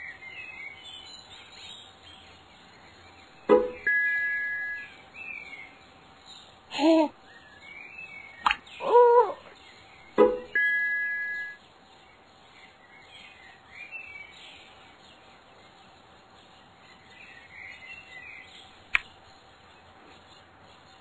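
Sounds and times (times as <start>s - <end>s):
faint birdsong chirps: 0.0s - 21.0s
sharp click: 8.4s - 8.6s.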